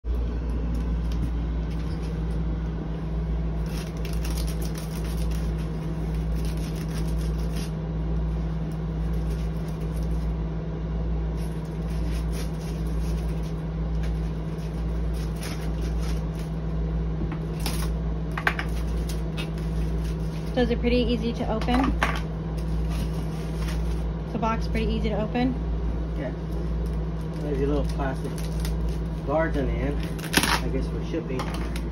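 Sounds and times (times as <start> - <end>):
low machine hum: 0.0 - 31.9
box cutter slitting tape and cardboard: 3.6 - 7.7, 17.5 - 17.9, 29.8 - 30.8.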